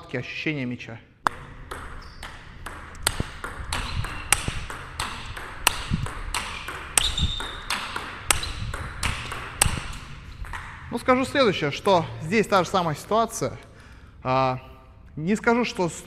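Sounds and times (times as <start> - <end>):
ping pong ball clicking: 1.2 - 10.9.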